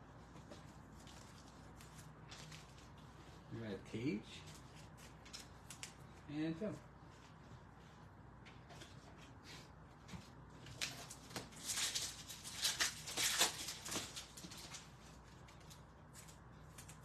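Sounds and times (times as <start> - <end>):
foil wrapper crinkling and tearing: 10.7 - 14.9.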